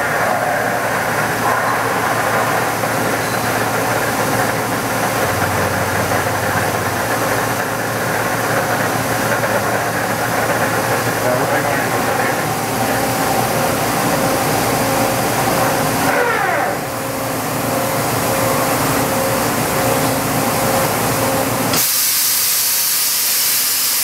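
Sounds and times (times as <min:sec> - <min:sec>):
machine whine: 0:00.0 - 0:24.0
machining center running: 0:00.0 - 0:24.0
loud steady hiss: 0:21.7 - 0:24.0.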